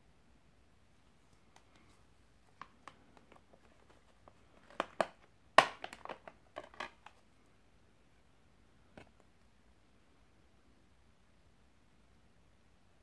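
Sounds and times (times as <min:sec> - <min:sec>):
plastic disc case clicking: 0:02.5 - 0:07.2.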